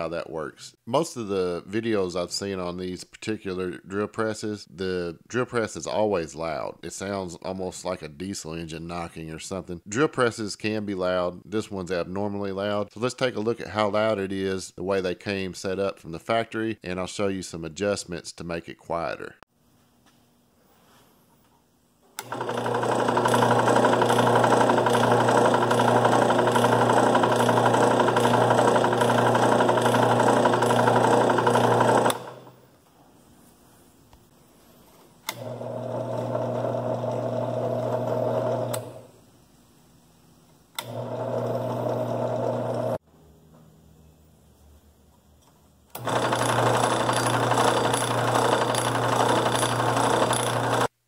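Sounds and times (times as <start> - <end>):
drill press motor and belt running: 22.2 - 32.5, 35.3 - 39.2, 40.8 - 43.0, 45.9 - 50.9.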